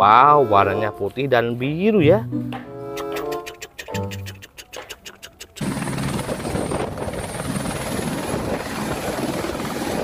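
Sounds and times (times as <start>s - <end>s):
helicopter rotor chop and engine: 3.0s - 10.0s.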